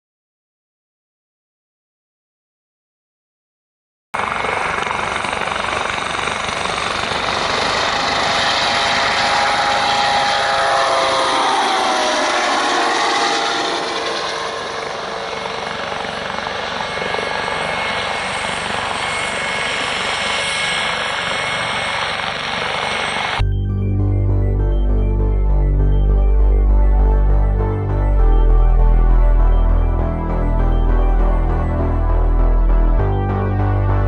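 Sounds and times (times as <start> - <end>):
helicopter turbine whine and rotor beat: 4.2 - 34.0.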